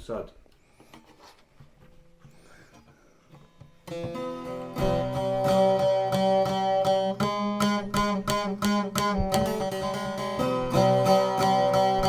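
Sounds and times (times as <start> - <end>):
lute picked with plectrum: 2.8 - 12.0.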